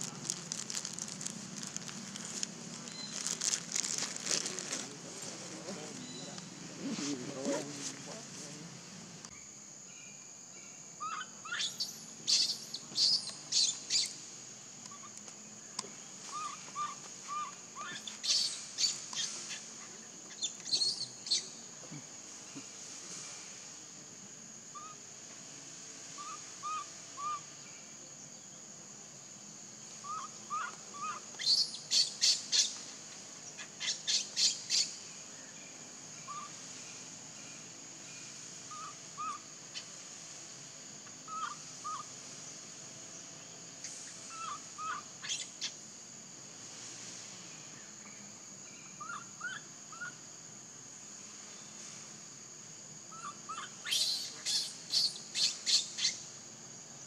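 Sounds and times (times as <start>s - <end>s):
birds chirping: 0.0s - 8.3s
high insect drone: 0.0s - 57.0s.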